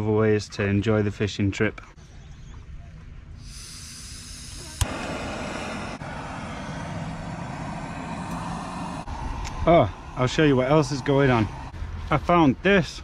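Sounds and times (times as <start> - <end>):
gas burner rushing: 3.4 - 11.8
gas hissing: 3.4 - 11.8.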